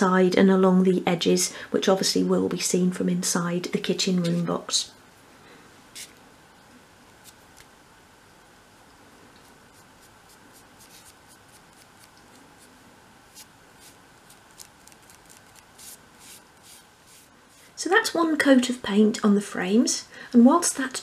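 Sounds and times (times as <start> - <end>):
paintbrush brushing: 9.4 - 17.8.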